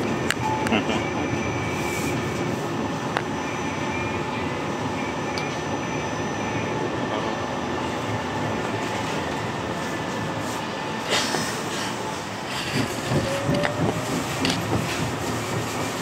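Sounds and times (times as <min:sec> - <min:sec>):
tram rolling rumble: 0:00.0 - 0:16.0.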